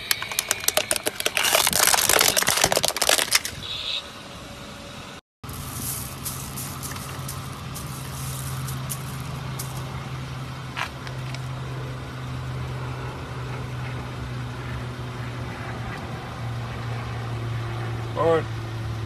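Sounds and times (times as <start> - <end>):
sharp engine crackles: 0.0 - 4.0, 5.5 - 18.3
car engine idling: 0.0 - 19.0.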